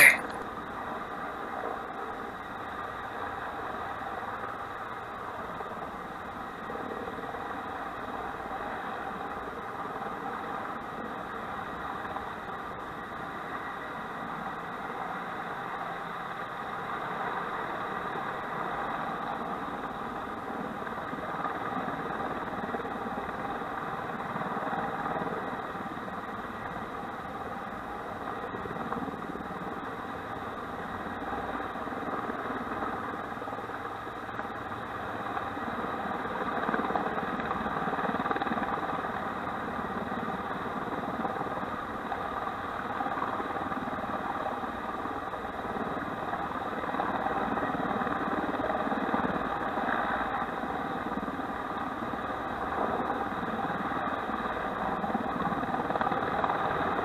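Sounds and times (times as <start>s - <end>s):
helicopter engine drone: 0.0s - 57.0s
turbine and rotor whine: 0.0s - 57.0s.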